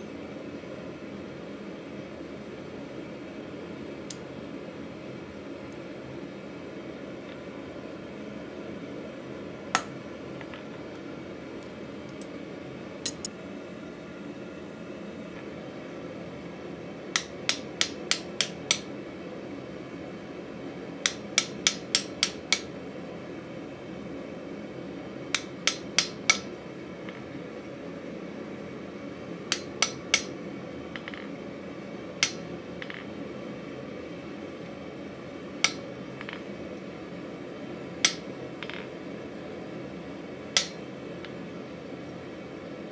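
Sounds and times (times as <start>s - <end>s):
hammer striking chisel on metal: 13.1s - 13.3s.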